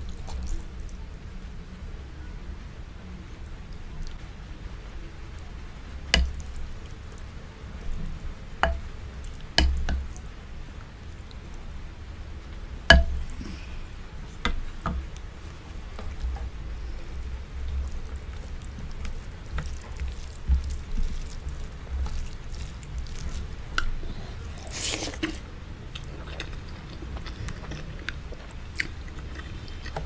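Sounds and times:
wet squishing and chewing: 0.0s - 1.0s, 17.2s - 30.0s.

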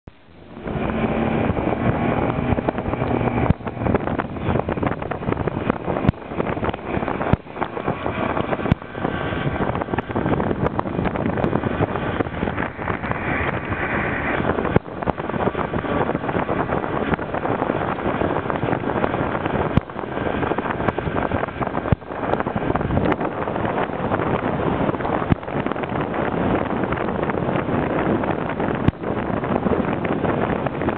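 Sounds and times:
outboard motor running: 0.1s - 30.9s
wind buffeting microphone: 0.1s - 30.9s.

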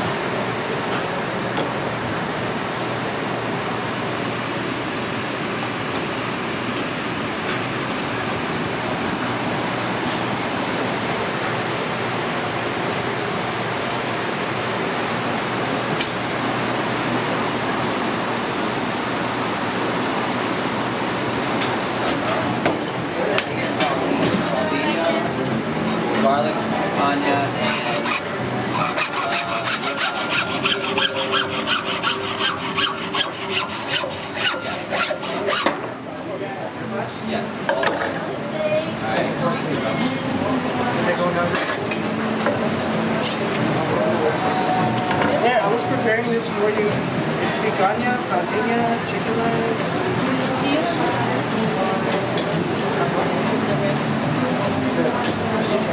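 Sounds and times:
hacksaw cutting through bone: 27.6s - 35.8s.

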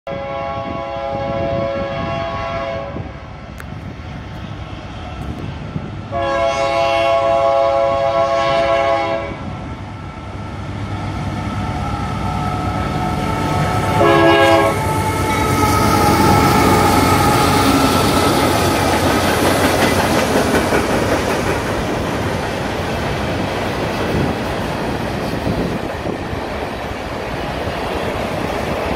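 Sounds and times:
locomotive air horn: 0.1s - 3.2s, 6.1s - 9.4s, 12.9s - 18.7s
train wheels running on rails: 3.0s - 28.9s.

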